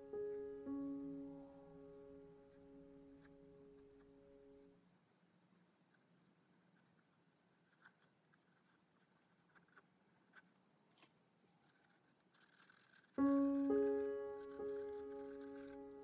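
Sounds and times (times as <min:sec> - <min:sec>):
music: 0:00.0 - 0:04.8, 0:13.2 - 0:16.0
marker pen scratching on paper: 0:05.9 - 0:10.5, 0:11.5 - 0:16.0.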